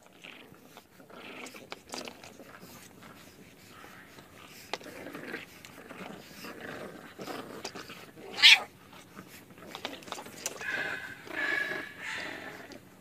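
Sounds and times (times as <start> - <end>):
pet animal vocalising: 9.8 - 12.9.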